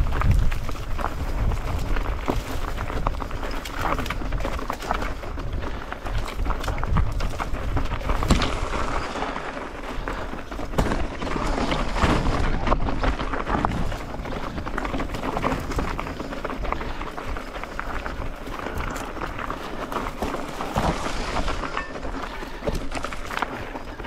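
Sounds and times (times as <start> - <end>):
wind rumble on microphone: 0.0 - 9.2
bike rattles and knocks: 0.0 - 24.0
tyres crunching on gravel: 0.0 - 24.0.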